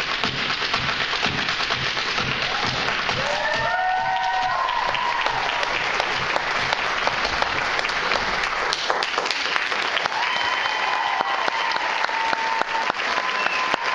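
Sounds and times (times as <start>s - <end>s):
audience clapping: 0.0s - 13.9s
crowd high calls: 2.4s - 8.7s, 10.1s - 13.9s.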